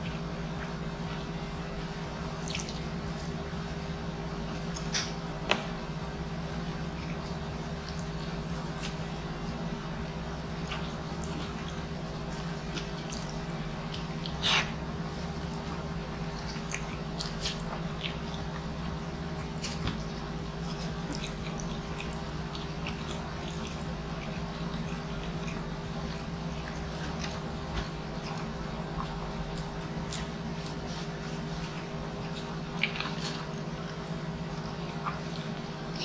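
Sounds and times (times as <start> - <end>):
chewing and mouth smacks: 0.0 - 36.0
steady low hum: 0.0 - 36.0.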